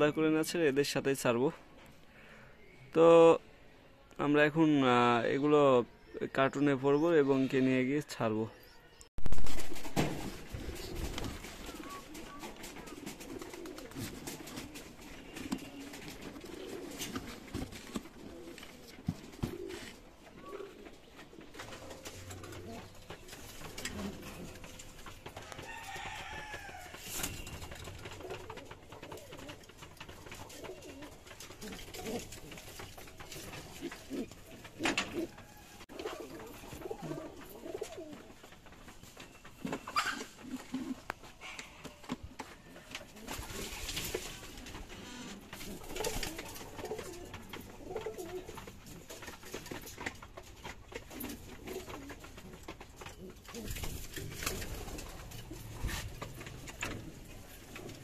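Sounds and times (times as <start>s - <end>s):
pigeons cooing: 10.2s - 58.0s.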